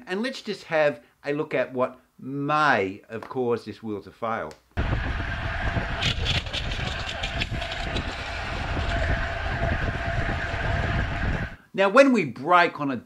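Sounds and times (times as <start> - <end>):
tyre and road noise: 4.8 - 11.3
wind rushing over microphone: 4.8 - 11.6.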